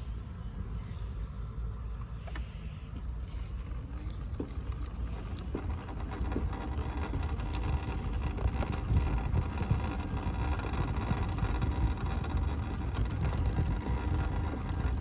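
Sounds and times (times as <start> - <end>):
faint steady whine: 0.0 - 15.0
mobility scooter travelling: 3.8 - 15.0
small clicks: 4.0 - 15.0
wind noise on microphone: 5.5 - 15.0.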